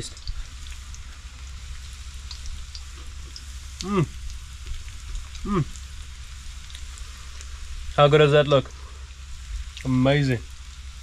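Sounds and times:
fish frying in hot oil: 0.0 - 11.0
person humming mmm: 3.8 - 4.2, 5.4 - 5.8.

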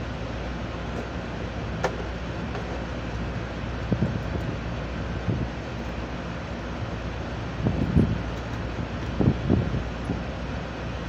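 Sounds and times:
low machinery hum: 0.0 - 11.0
wind on microphone: 3.8 - 5.6, 7.6 - 8.4, 9.0 - 10.3.

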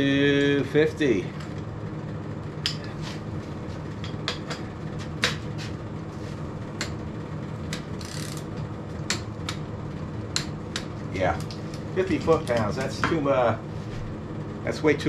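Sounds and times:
steady low hum: 0.0 - 15.0
torque wrench clicking: 7.7 - 8.5.

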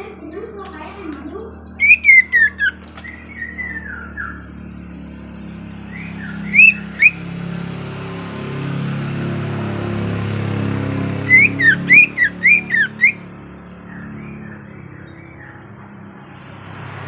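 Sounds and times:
low hum: 0.0 - 16.9
songbird whistled calls: 1.6 - 4.8, 5.8 - 7.3, 11.2 - 15.8.

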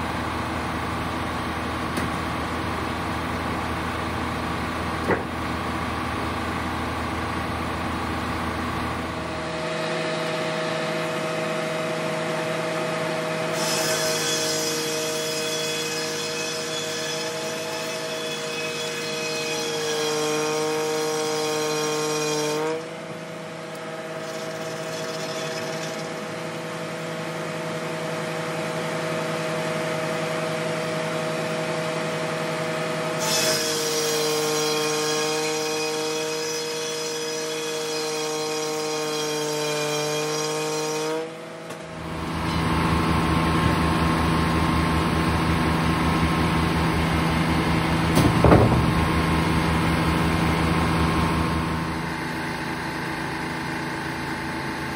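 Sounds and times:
circular saw blade whine: 0.0 - 54.9
sharp knock: 5.0 - 5.4, 48.1 - 49.1
machinery drone: 41.7 - 54.9.

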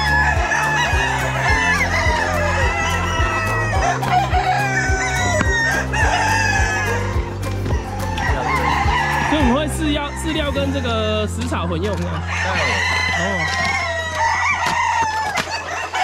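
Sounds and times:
music with steady beat: 0.0 - 9.9
hens clucking: 0.0 - 16.0
roosters crowing: 0.0 - 16.0.

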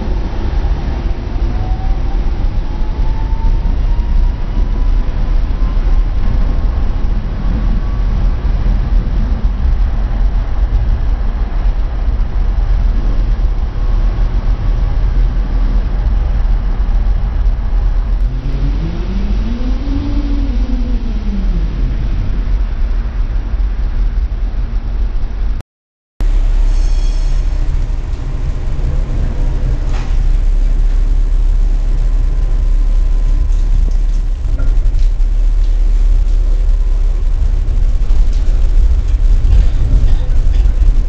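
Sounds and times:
low rising and falling tone: 0.0 - 25.5, 26.2 - 41.0
tram rumble: 0.0 - 25.6, 26.2 - 41.0
faint rising whine: 26.2 - 41.0.

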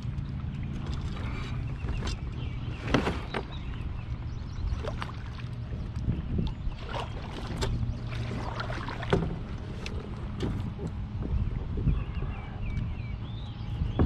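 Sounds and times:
low rumble: 0.0 - 14.0
paddle strokes splashing: 0.8 - 11.2.

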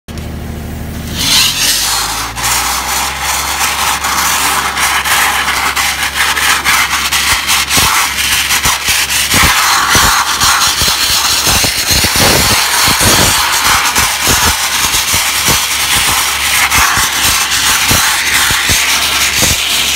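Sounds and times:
low machine hum: 0.1 - 6.3
wet abrasive blaster hissing: 1.0 - 19.9
grit crackling on metal: 1.2 - 19.9.

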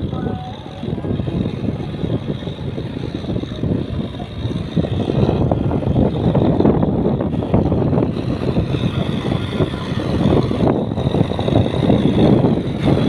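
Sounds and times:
tractor engine under load: 0.0 - 13.0.

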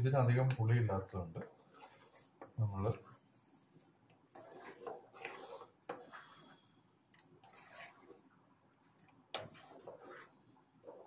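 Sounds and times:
spoon stirring thick curry: 1.6 - 2.6, 4.3 - 11.0.

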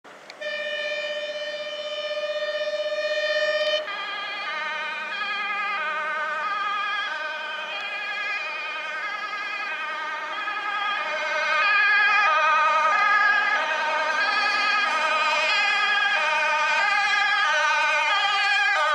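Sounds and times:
fire engine two-tone siren: 0.3 - 18.9.

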